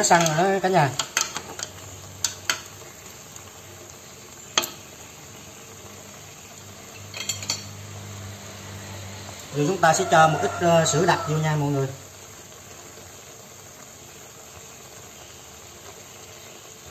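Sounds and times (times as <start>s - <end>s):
utensils clinking against pot: 0.0s - 2.7s, 7.0s - 7.8s
chicken sizzling in a pot: 0.0s - 16.9s.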